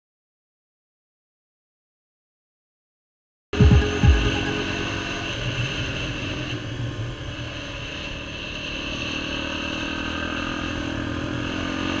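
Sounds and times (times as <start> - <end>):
quad bike engine running: 7.2 - 12.0.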